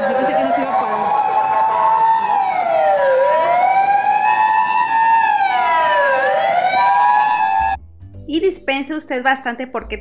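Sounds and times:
emergency siren wailing: 0:00.0 - 0:07.8.

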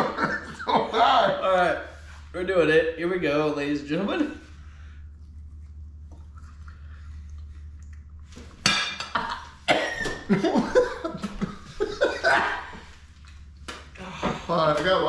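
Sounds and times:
men gagging and retching: 0:08.9 - 0:13.0.

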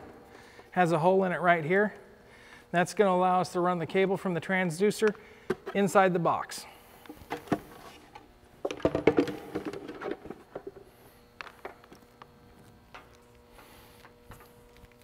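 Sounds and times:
plastic handling clicks and knocks: 0:08.6 - 0:10.8.

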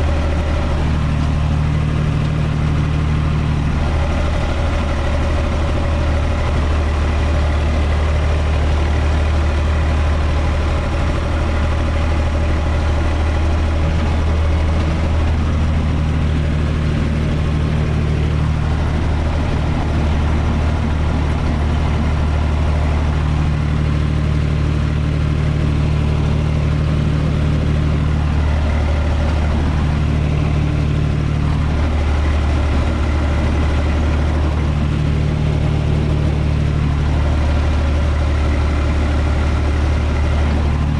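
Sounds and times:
higher engine hum: 0:00.0 - 0:40.9
tractor diesel engine running: 0:00.0 - 0:40.9.

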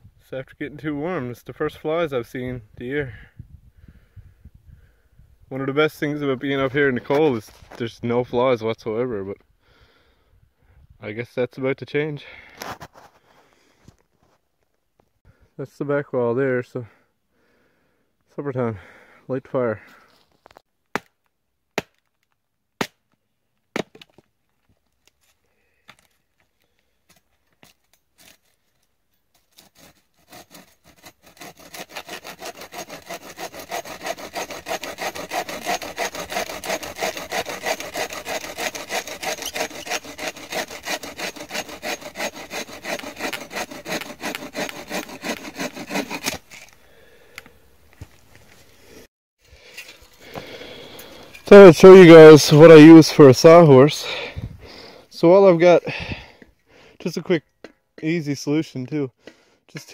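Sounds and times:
hatchet chopping wood: 0:20.9 - 0:21.2, 0:21.8 - 0:22.1, 0:22.8 - 0:23.0, 0:23.7 - 0:24.2, 0:29.7 - 0:46.6
bow saw cutting a log: 0:27.6 - 0:28.6, 0:29.4 - 0:47.4.

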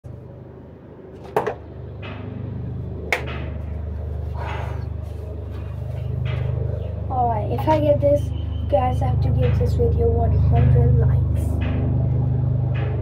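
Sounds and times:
steady low hum: 0:00.0 - 0:13.0
soft breathy puffs: 0:04.2 - 0:06.0.

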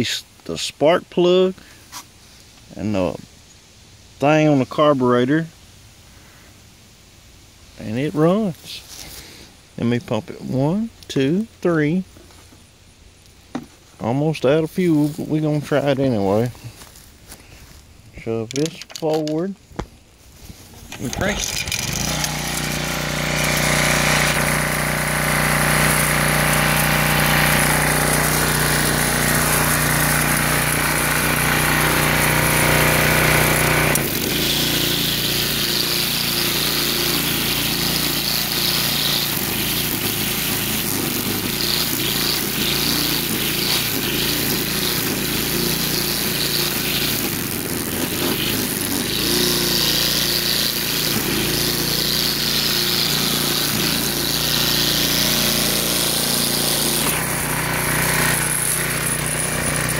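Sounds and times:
trimmer line cutting grass: 0:07.8 - 0:09.4, 0:14.6 - 0:17.8, 0:20.3 - 0:59.9
string trimmer engine running: 0:08.6 - 0:09.4, 0:20.3 - 0:59.9.

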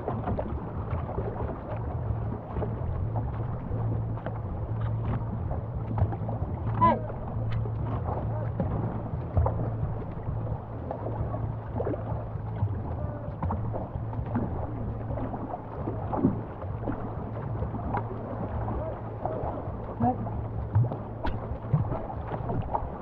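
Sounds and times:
canoe paddles dipping in water: 0:00.0 - 0:23.0
water washing along hull: 0:00.0 - 0:23.0.

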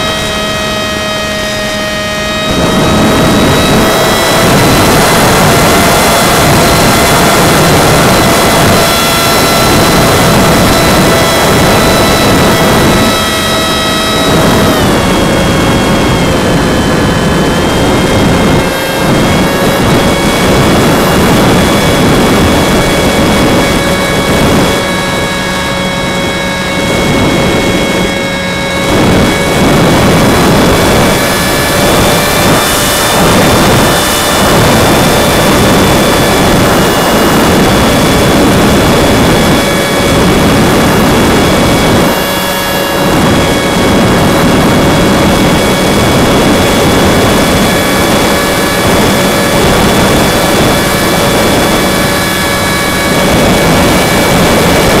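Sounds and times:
electric motor and propeller whine: 0:00.0 - 0:55.0
wind rushing over microphone: 0:00.0 - 0:55.0.

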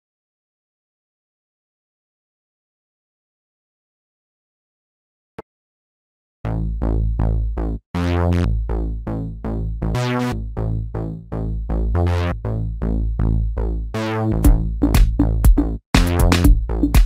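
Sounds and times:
background music with steady beat: 0:06.5 - 0:17.0.

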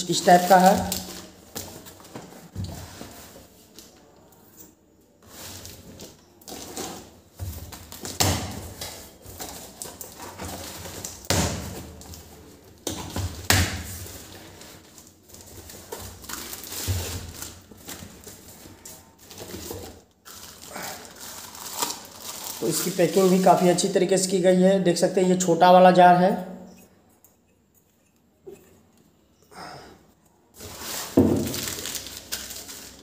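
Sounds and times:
packaging rustling and crinkling: 0:00.1 - 0:03.8, 0:05.2 - 0:24.0, 0:30.6 - 0:33.0.

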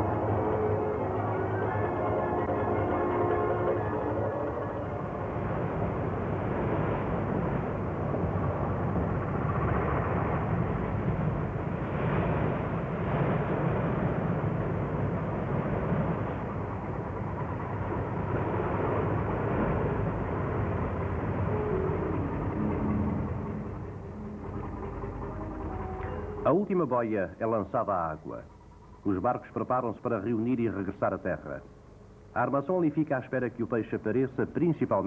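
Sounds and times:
water running along hull: 0:00.0 - 0:29.2
boat engine rumble: 0:00.0 - 0:35.0.

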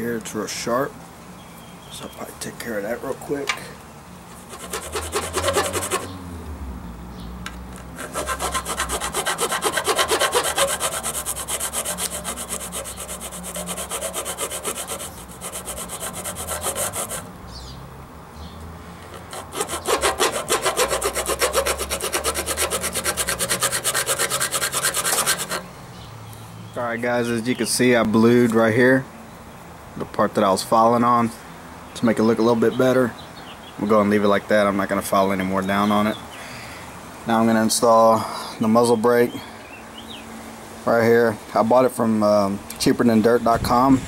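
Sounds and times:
file rasping on metal: 0:04.5 - 0:06.1, 0:08.0 - 0:17.3, 0:19.1 - 0:25.7.

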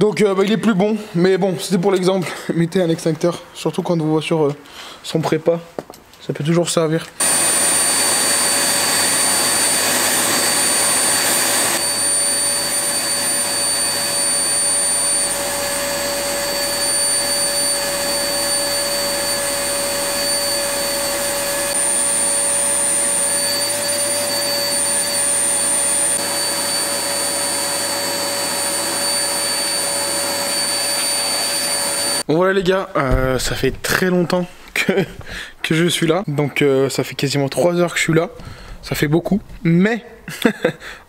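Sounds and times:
vacuum cleaner whining: 0:07.2 - 0:32.3.

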